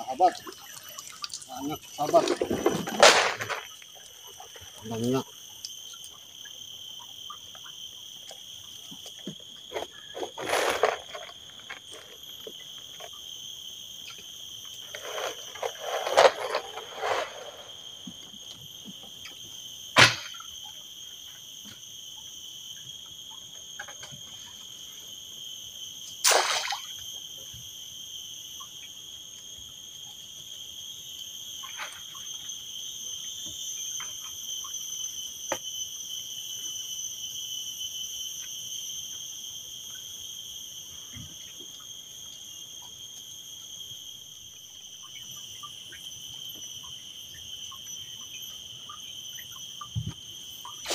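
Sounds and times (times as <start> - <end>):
insects chirring: 0.0 - 50.9.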